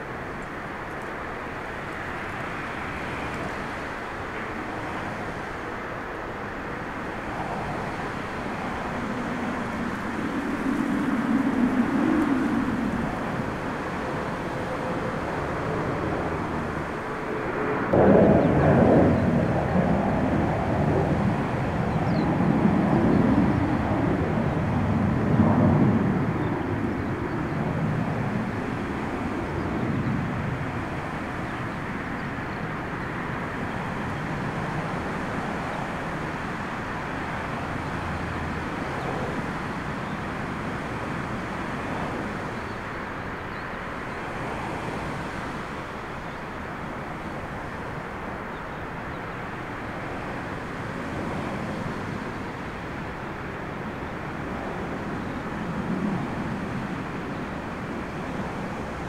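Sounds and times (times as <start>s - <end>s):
jet engine rumble: 0.0s - 59.0s.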